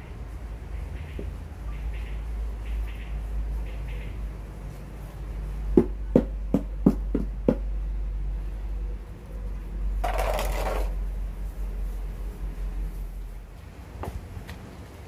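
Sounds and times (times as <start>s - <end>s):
scraping rustle: 10.0s - 13.5s.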